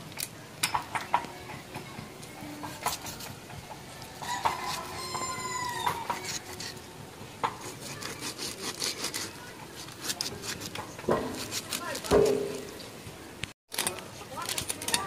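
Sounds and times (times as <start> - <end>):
chicken calling: 4.1 - 6.6.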